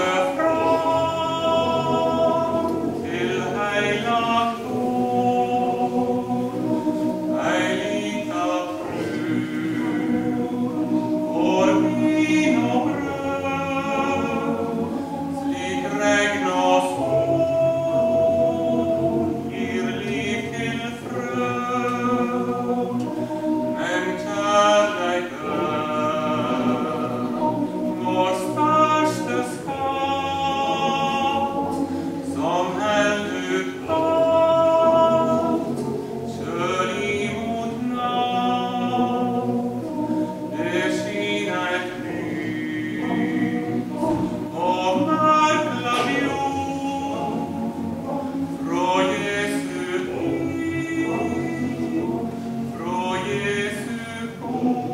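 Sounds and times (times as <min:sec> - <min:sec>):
male choir singing: 0:00.0 - 0:54.9.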